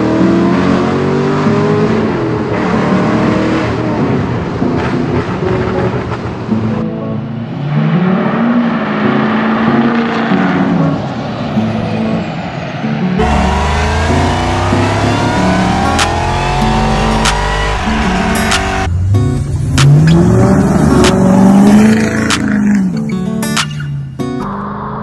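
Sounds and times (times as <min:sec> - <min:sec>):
engine revving with rising whine: 0:07.4 - 0:22.8
truck engine running: 0:13.2 - 0:22.4
intro music: 0:13.2 - 0:22.5.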